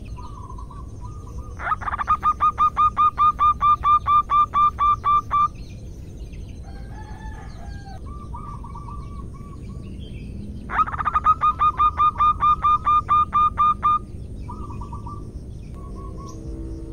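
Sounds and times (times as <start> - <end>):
dove calling in clipped notes: 0.0 - 5.6, 10.6 - 16.7
faint bird calls: 0.0 - 5.7, 6.6 - 16.9.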